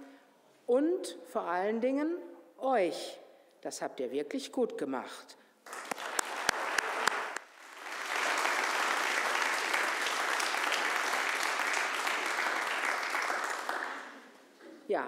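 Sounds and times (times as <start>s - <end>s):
congregation applauding: 5.6s - 14.4s
single hand claps: 5.7s - 14.2s.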